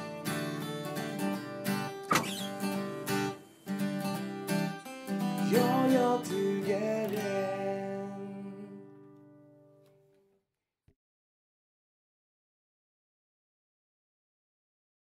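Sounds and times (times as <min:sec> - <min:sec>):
acoustic guitar strumming chords: 0:00.0 - 0:09.8.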